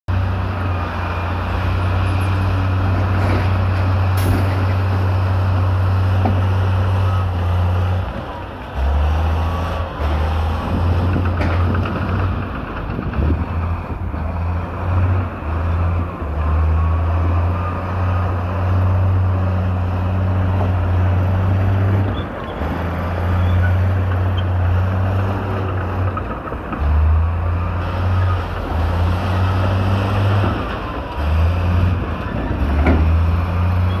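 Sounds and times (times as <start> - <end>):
dump truck diesel engines rumbling: 0.1 - 34.0.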